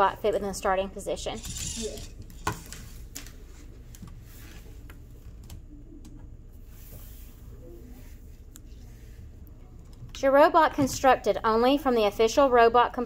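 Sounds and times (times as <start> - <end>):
low room hum: 0.0 - 13.0.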